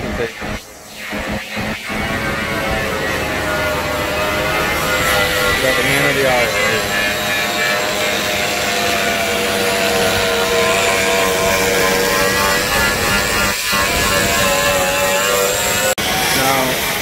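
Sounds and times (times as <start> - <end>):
angle grinder whining: 0.0 - 17.0.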